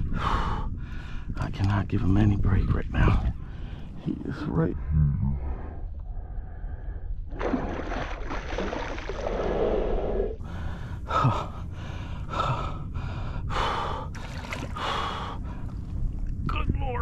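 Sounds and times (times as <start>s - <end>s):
wind rumble on microphone: 0.0s - 8.5s, 9.1s - 17.0s
man breathing hard and gasping: 10.4s - 15.8s.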